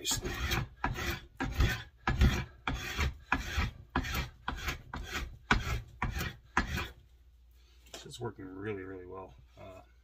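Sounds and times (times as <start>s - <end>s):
spokeshave shaving wood: 0.0s - 7.0s.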